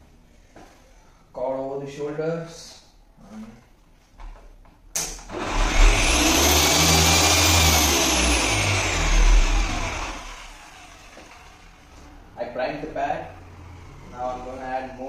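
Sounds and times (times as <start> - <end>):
electric polisher motor whine: 5.3 - 11.7.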